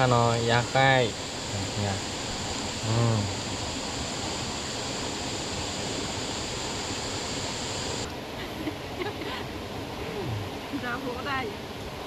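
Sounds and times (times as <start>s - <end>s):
waterfall rushing: 0.0s - 12.0s
person vocal sound: 2.8s - 3.3s.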